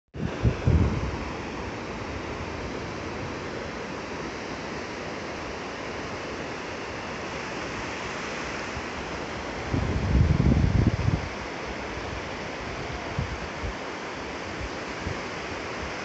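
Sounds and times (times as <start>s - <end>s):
wind buffeting microphone: 0.2s - 3.5s, 8.7s - 13.8s
waves washing on shore: 0.2s - 16.0s.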